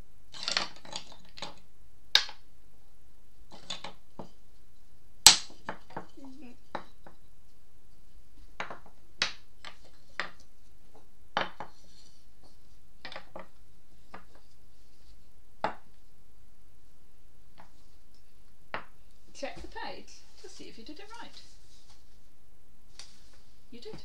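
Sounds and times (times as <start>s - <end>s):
wooden toys knocking on table: 8.6s - 10.4s, 11.4s - 11.8s, 13.0s - 13.5s, 18.7s - 18.9s.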